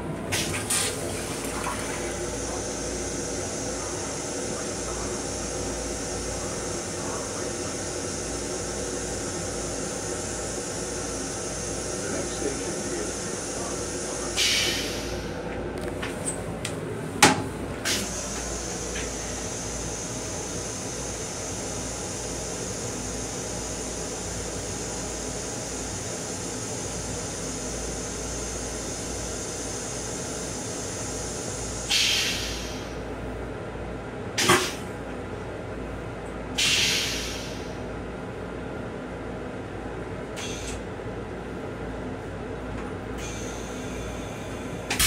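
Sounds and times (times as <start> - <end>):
train interior hiss and hum: 0.0 - 45.0
sudden air hisses: 14.4 - 15.3, 36.6 - 37.7.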